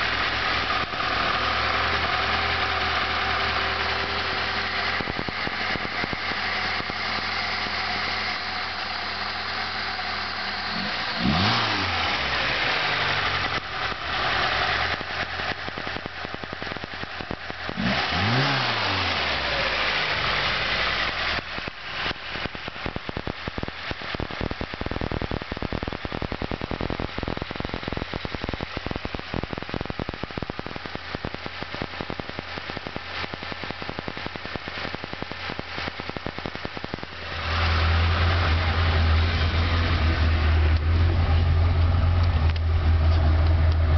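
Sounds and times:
car engine idling: 0:00.0 - 0:43.9
engine revving: 0:00.0 - 0:43.9.

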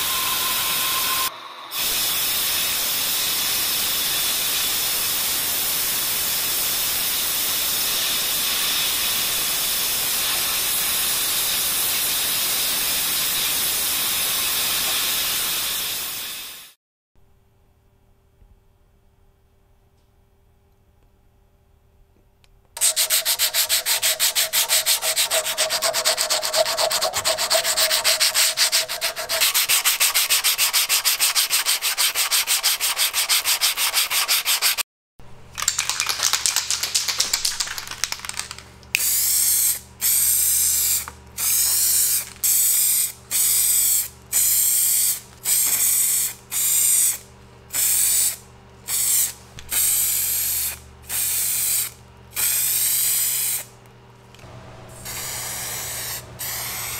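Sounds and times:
aerosol spray can hissing: 0:22.8 - 0:31.2, 0:37.4 - 0:53.7, 0:55.0 - 0:56.9
fast rasping scrape: 0:22.8 - 0:34.8.

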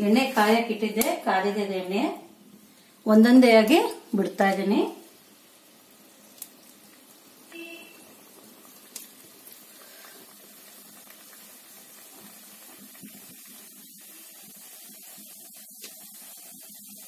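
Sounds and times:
dough deep-frying in oil: 0:00.0 - 0:17.0.

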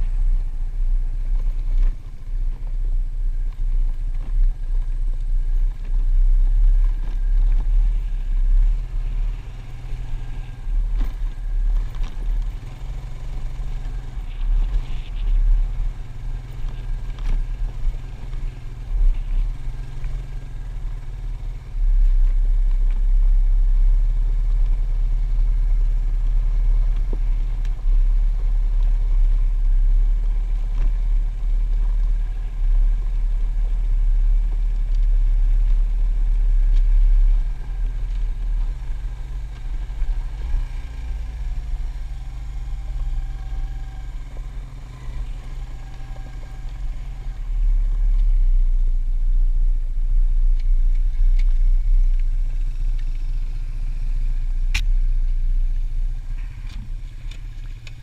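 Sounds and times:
low rumble on microphone: 0:00.0 - 0:58.0
quad bike engine running: 0:00.0 - 0:58.0.

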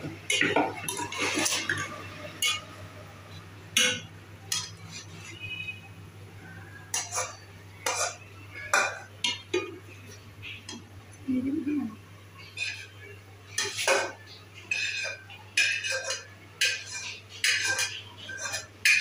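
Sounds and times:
steel spatula clinking on pot: 0:00.3 - 0:02.8, 0:03.8 - 0:05.0, 0:06.9 - 0:09.7, 0:13.5 - 0:19.0.

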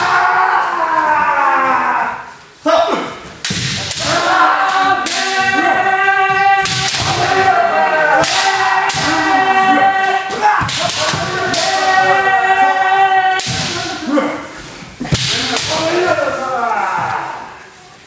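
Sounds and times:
people shouting: 0:00.0 - 0:02.4, 0:03.8 - 0:17.8
bamboo sword strikes: 0:13.4 - 0:13.8.

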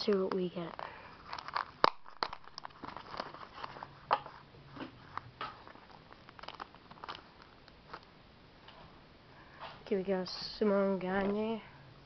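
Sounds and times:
trading cards shuffled by hand: 0:00.0 - 0:08.1.

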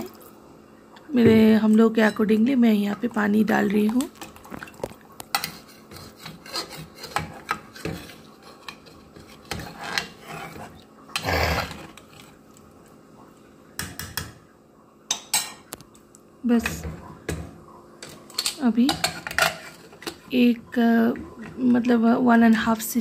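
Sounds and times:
ladle scraping metal pot: 0:04.6 - 0:12.4.

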